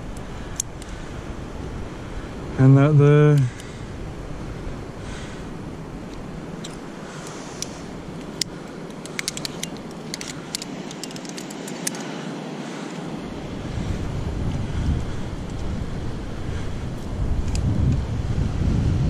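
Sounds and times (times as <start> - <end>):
wind rumbling on microphone: 0.0 - 19.0
metal climbing hardware clinking: 6.1 - 12.2.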